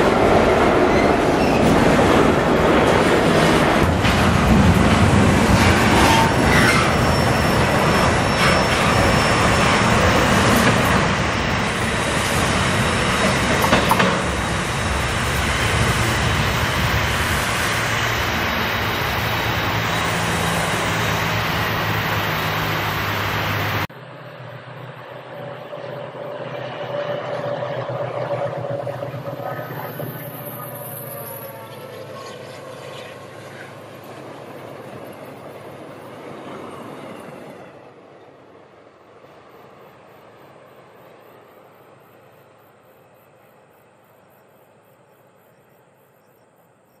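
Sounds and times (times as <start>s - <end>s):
freight train wheels rumbling: 0.0s - 43.4s
wheel squeal: 0.9s - 1.8s, 5.6s - 10.9s, 26.8s - 33.8s.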